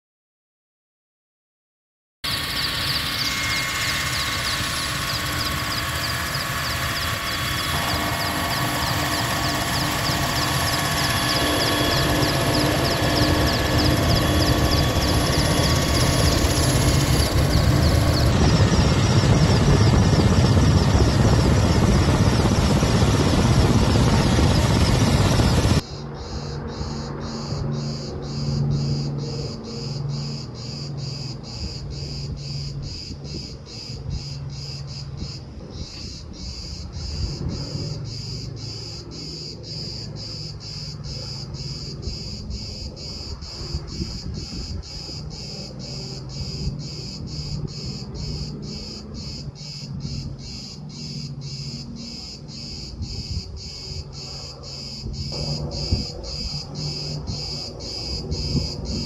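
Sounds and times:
insects chirping: 2.2 - 59.0
low plane engine drone: 2.2 - 59.0.

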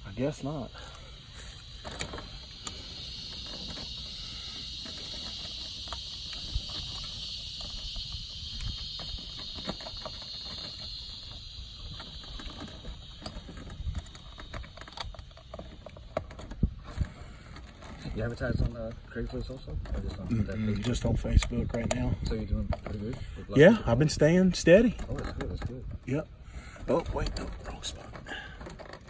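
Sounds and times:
insects droning: 0.0 - 29.0
wires clicking and rustling: 1.5 - 23.3.

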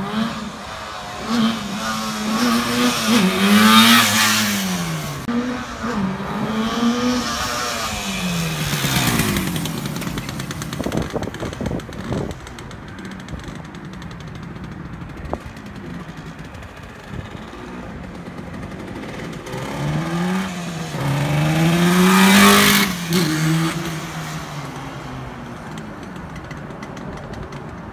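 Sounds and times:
motorcycle revving past: 0.0 - 27.6.

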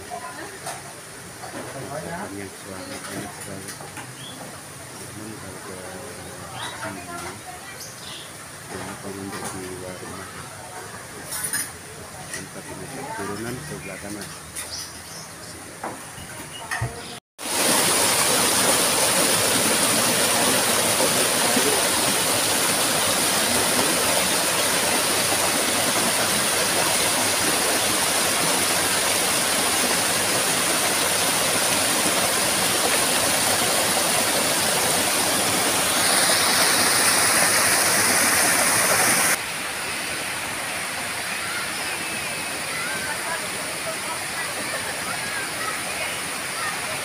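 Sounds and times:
water pouring over stones: 17.4 - 39.4.

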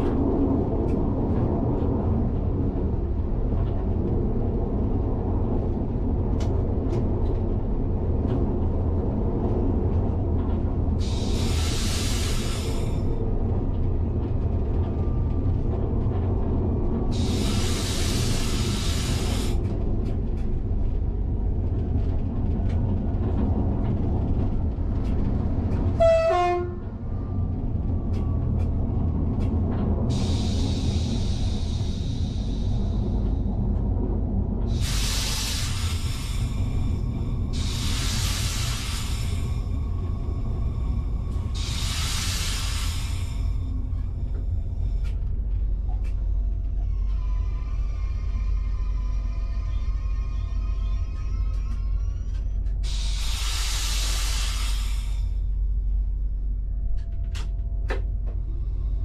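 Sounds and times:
passing train: 0.0 - 59.0
railcar low rumble: 0.0 - 59.0
two-tone train horn: 26.0 - 26.9.

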